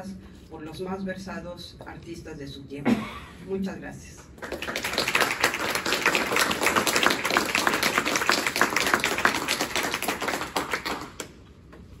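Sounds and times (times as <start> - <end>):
audience clapping: 4.4 - 11.5.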